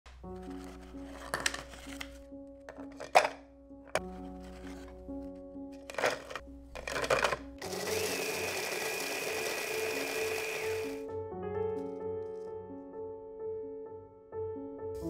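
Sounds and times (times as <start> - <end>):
background music: 0.1 - 15.0
biscuits clattering into bowl: 2.7 - 4.0, 5.8 - 7.6
hand blender motor whine: 5.9 - 11.0.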